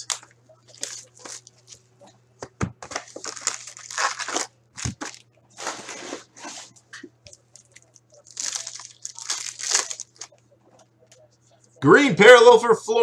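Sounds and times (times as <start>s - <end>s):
foil wrappers crinkling: 0.0s - 1.8s, 2.8s - 10.4s.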